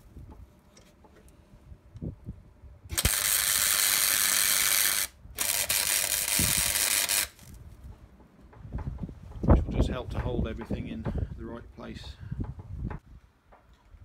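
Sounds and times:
welding arc sizzling: 0:02.9 - 0:07.6.

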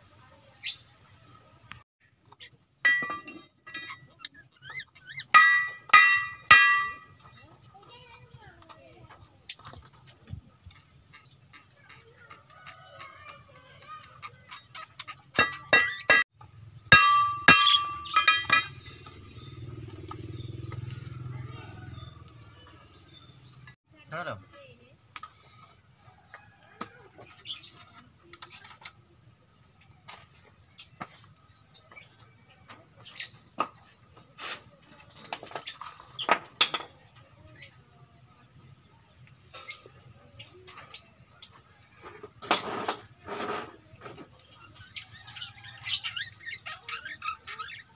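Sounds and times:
sharp metallic clangs: 0:02.8 - 0:04.2, 0:05.3 - 0:07.4, 0:15.4 - 0:16.3, 0:16.9 - 0:19.3.

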